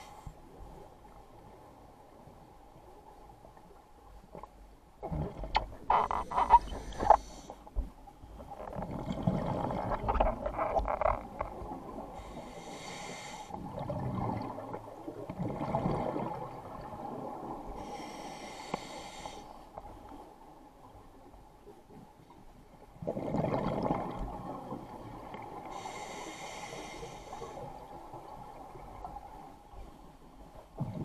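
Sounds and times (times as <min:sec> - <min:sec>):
exhaled bubbles rumbling underwater: 0:04.9 - 0:07.2, 0:07.9 - 0:12.6, 0:13.6 - 0:18.2, 0:22.6 - 0:26.5, 0:27.1 - 0:31.0
regulator inhale hissing: 0:06.7 - 0:07.6, 0:12.2 - 0:13.6, 0:17.8 - 0:19.6, 0:25.7 - 0:27.6.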